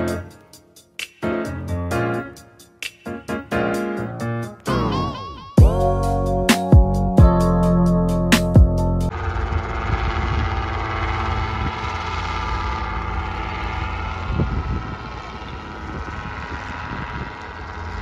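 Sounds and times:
helicopter flying overhead: 0.0 - 4.7, 8.6 - 18.0.

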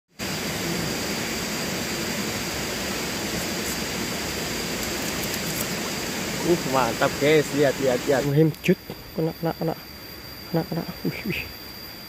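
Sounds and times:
steady rushing noise: 0.2 - 8.9.

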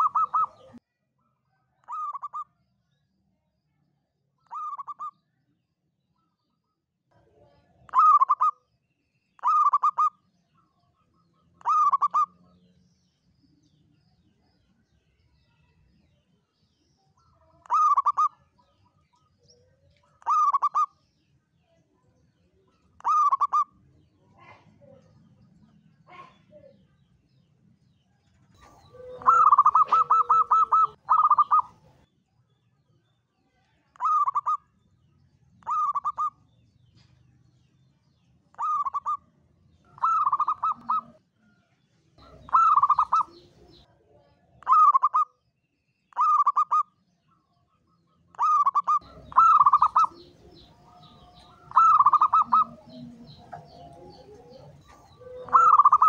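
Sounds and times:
dove cooing: 0.0 - 0.8, 1.9 - 2.4, 4.5 - 5.1, 7.9 - 8.5, 9.4 - 10.2, 11.6 - 12.4, 17.6 - 18.4, 20.2 - 20.9, 23.0 - 23.7, 28.6 - 32.0, 34.0 - 34.6, 35.6 - 36.4, 38.6 - 39.2, 39.9 - 41.2, 42.2 - 43.8, 44.6 - 45.2, 46.2 - 46.8, 48.4 - 56.0.

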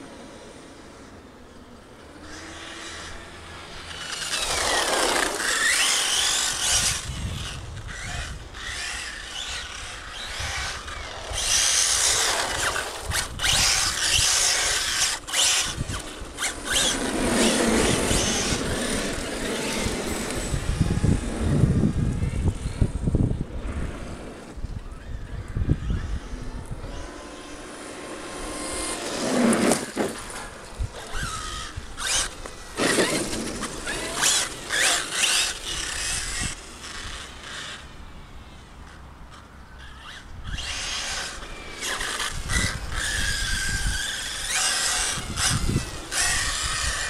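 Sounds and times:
toy car motor whining: 0.2 - 47.0
tyres rumbling on asphalt: 2.0 - 24.7, 27.1 - 37.9.

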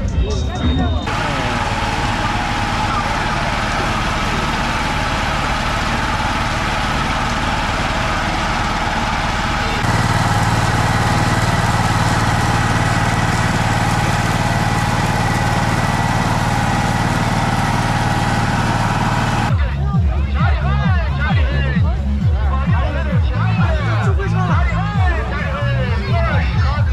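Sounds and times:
busy outdoor market din: 0.0 - 26.9
small motor humming: 1.1 - 19.5.

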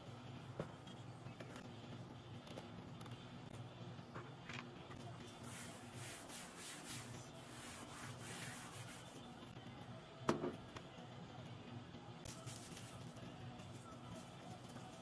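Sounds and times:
cloth rubbing on textured panel: 5.4 - 9.2.

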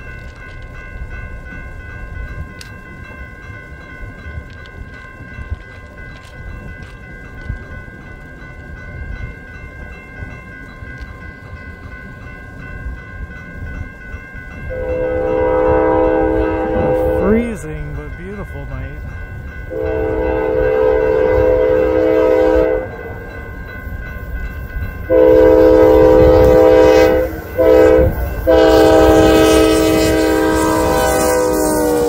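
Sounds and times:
crossing warning bell ringing: 0.0 - 32.0
locomotive air horn chord: 14.7 - 17.2, 19.7 - 23.0, 25.1 - 32.0.

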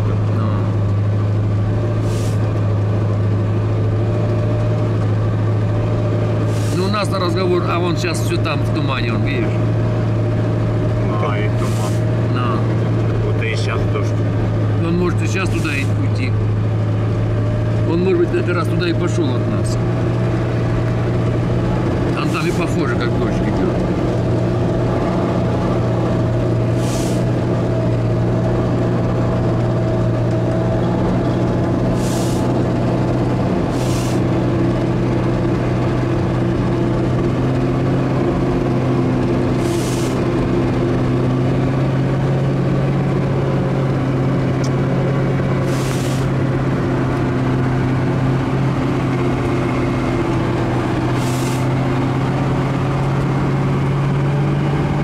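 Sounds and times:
truck engine droning: 0.0 - 55.0
short hisses: 2.0 - 2.4, 6.5 - 6.8, 11.6 - 12.0, 26.8 - 27.2, 31.9 - 32.5, 33.7 - 34.2, 39.6 - 40.2, 45.6 - 46.3.

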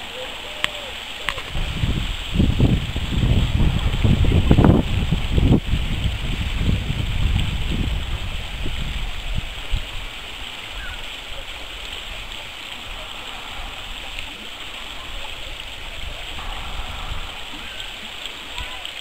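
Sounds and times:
flowing stream water: 0.0 - 19.0
low rumble: 12.5 - 18.6.

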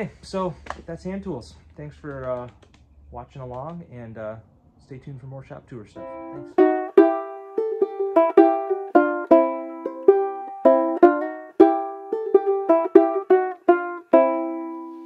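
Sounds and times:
banjo ukulele picked melody: 6.0 - 15.0.

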